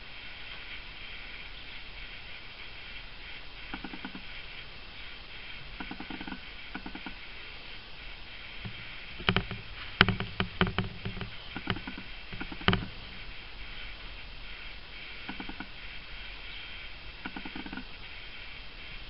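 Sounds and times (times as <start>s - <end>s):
faint steady hiss: 0.0s - 19.0s
light clicks and knocks: 8.6s - 13.0s.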